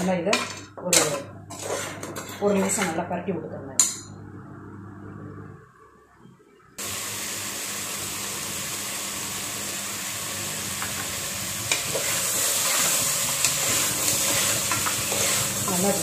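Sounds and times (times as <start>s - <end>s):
metal spoon scraping a pot: 0.0s - 3.0s, 11.7s - 15.8s
meat sizzling in a pan: 6.8s - 16.0s.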